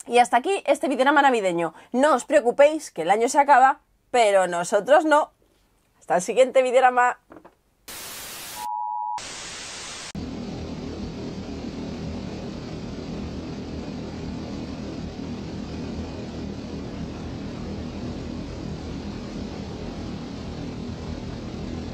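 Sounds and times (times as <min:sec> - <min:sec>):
static hiss: 0:07.8 - 0:10.4
dense low rumble: 0:10.2 - 0:21.9.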